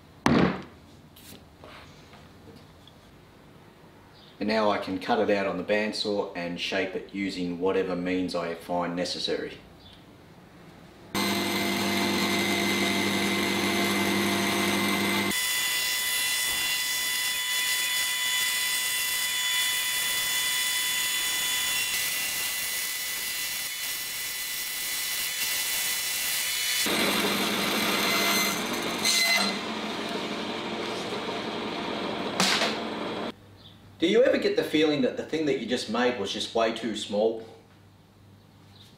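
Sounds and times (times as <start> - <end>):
bandsaw cutting: 11.2 - 33.3.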